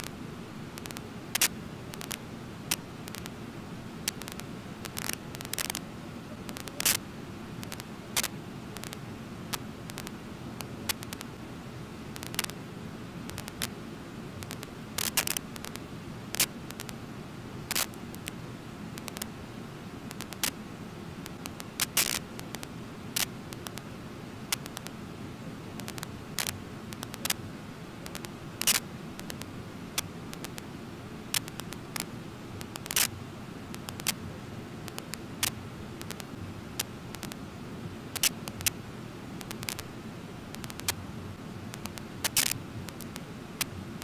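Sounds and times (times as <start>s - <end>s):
sharp clicks: 0.8s - 3.3s, 4.0s - 5.8s, 10.9s - 11.3s, 12.2s - 12.6s, 13.3s - 13.7s, 14.4s - 15.8s, 17.7s - 18.3s, 20.1s - 20.6s, 21.3s - 23.8s, 25.8s - 27.4s, 28.1s - 30.6s, 31.3s - 31.8s, 32.6s - 33.1s, 34.9s - 37.4s, 38.2s - 38.8s, 40.5s - 41.0s, 41.7s - 43.7s.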